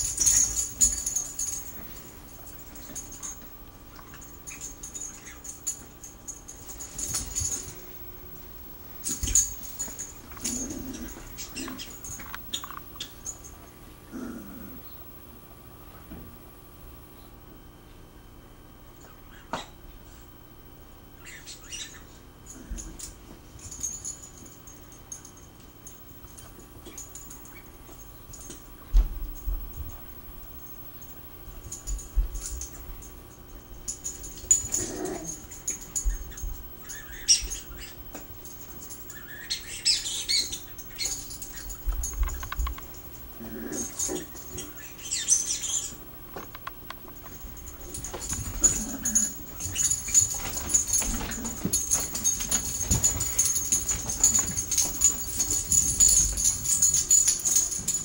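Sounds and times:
dog collar tags jingling: 0:00.0 - 0:07.9, 0:09.0 - 0:13.5, 0:30.7 - 0:45.8, 0:47.0 - 0:58.0
paws thumping on carpet: 0:47.2 - 0:58.0.

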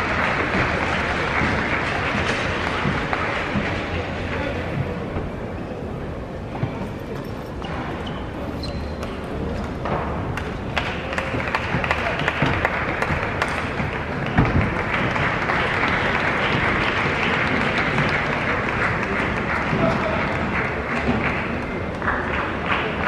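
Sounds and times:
crowd applause: 0:00.0 - 0:04.8, 0:10.3 - 0:23.0.

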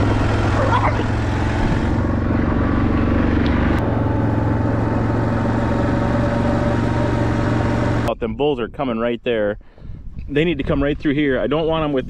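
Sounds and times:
quad engine running: 0:00.0 - 0:08.1.

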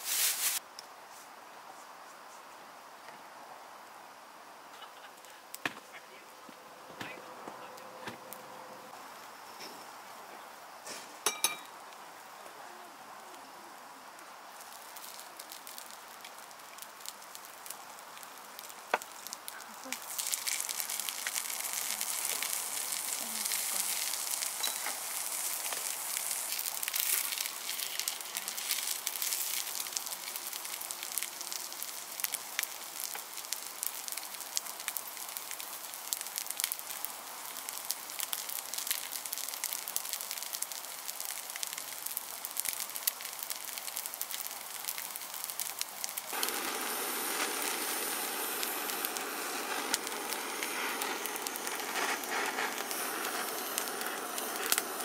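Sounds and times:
food sizzling in oil: 0:00.0 - 0:00.6, 0:10.8 - 0:12.4, 0:14.0 - 0:55.0.

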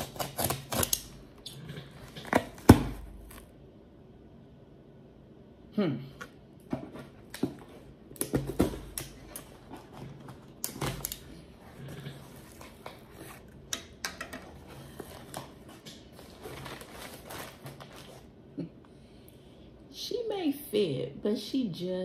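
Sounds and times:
rustling of cardboard and tape: 0:06.7 - 0:13.6, 0:14.3 - 0:18.4.

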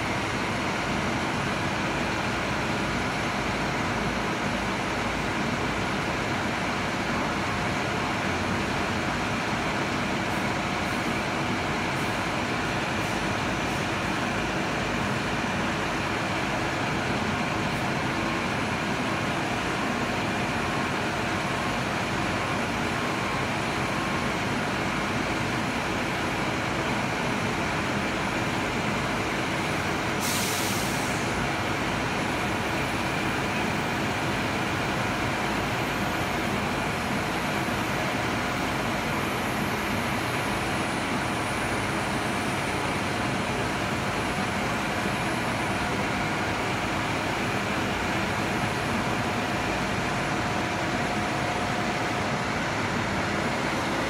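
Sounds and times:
diesel engine running under load: 0:00.0 - 0:54.0
air hiss: 0:30.2 - 0:31.3.

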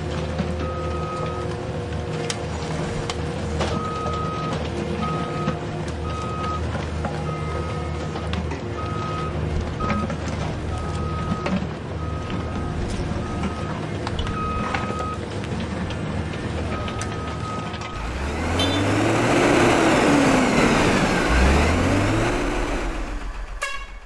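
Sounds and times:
engine rumble rising and falling: 0:00.0 - 0:24.0
truck rumble: 0:00.0 - 0:24.0
reversing beeps: 0:00.6 - 0:01.5, 0:03.7 - 0:06.6, 0:07.2 - 0:15.2, 0:16.6 - 0:19.2.

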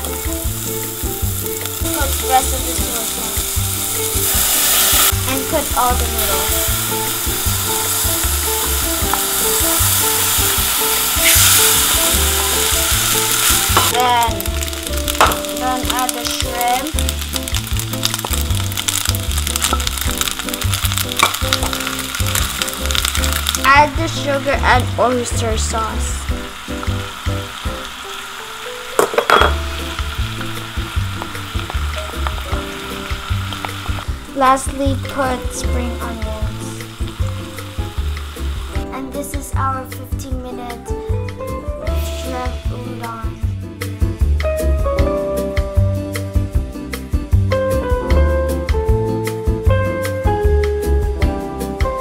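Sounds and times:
background music with bass line: 0:00.0 - 0:28.0, 0:29.3 - 0:52.0
noodles sizzling in hot pan: 0:00.0 - 0:39.6.

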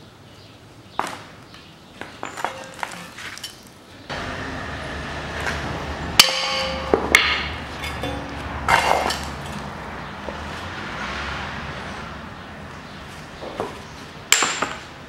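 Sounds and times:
dull metal clatter: 0:02.2 - 0:03.6, 0:06.2 - 0:09.7
metal parts clanking: 0:02.2 - 0:03.7, 0:07.7 - 0:09.7
ringing metal knocks: 0:06.2 - 0:09.6.

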